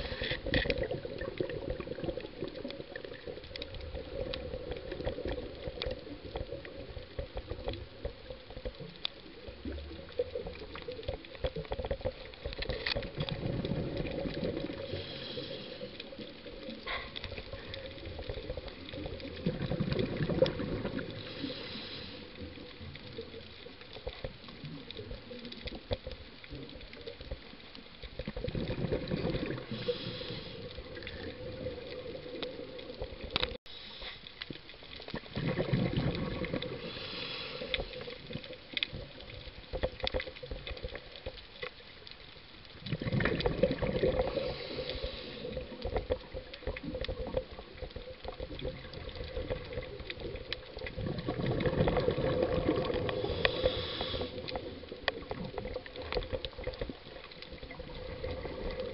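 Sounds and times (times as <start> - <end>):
exhaled bubbles gurgling: 0.0 - 33.6, 34.3 - 58.9
regulator breathing hiss: 14.8 - 16.1, 21.2 - 22.4, 29.7 - 30.9, 33.7 - 34.3, 36.8 - 38.1, 44.2 - 45.7, 53.1 - 54.8.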